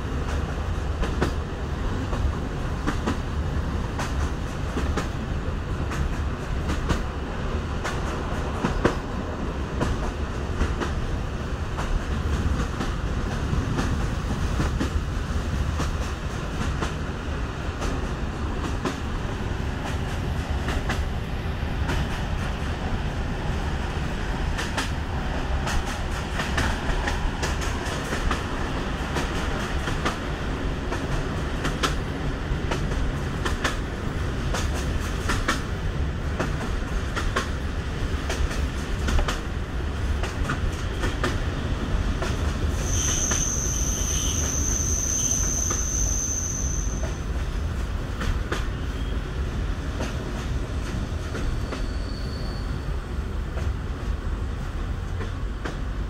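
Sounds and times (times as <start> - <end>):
train wheels rumbling on track: 0.0 - 56.0
sharp rail clicks: 24.5 - 25.0, 25.6 - 32.0, 32.6 - 35.8, 36.4 - 41.5.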